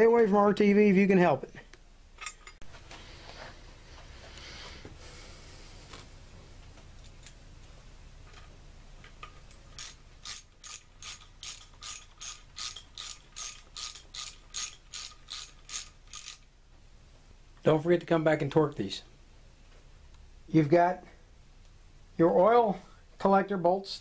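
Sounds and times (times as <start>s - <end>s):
hand ratchet clicking: 9.8s - 16.5s.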